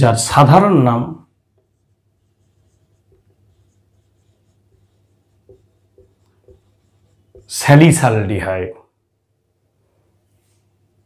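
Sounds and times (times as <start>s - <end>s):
marker pen scratching on whiteboard: 1.5s - 8.2s.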